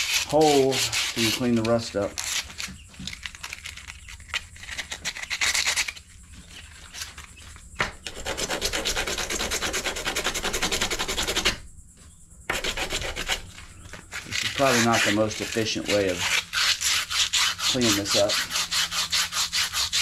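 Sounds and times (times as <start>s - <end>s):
scrubbing rust off metal: 0.0s - 7.2s, 12.5s - 20.0s.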